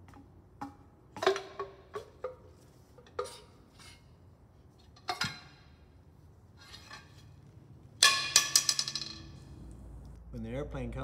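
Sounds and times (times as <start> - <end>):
metal parts clinking and knocking: 8.0 - 9.4.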